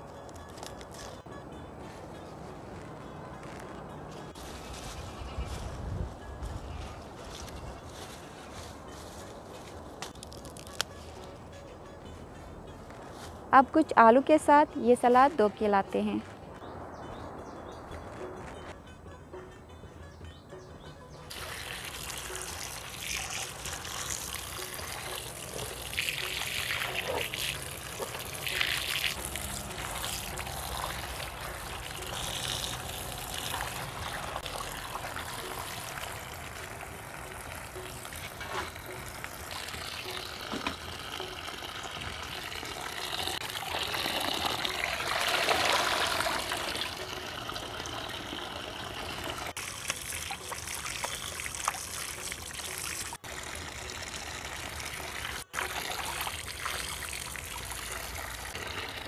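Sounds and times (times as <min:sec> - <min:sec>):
water splashing and trickling: 0:21.3 - 0:59.0.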